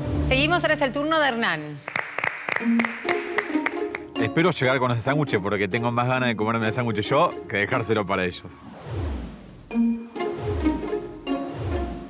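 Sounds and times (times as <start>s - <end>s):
string instrument music: 2.6s - 8.2s, 9.7s - 12.0s.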